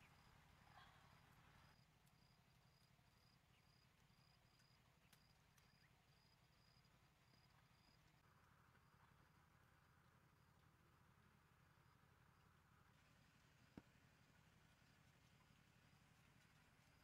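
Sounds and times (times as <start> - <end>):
faint cricket chirping: 0.0 - 8.2.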